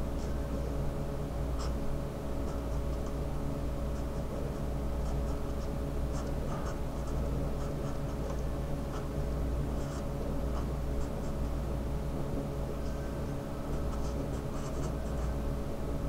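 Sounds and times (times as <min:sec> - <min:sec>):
steady low hum: 0:00.0 - 0:16.0
marker scratching on paper: 0:01.6 - 0:01.8, 0:02.4 - 0:03.2, 0:03.9 - 0:11.6, 0:13.6 - 0:15.4.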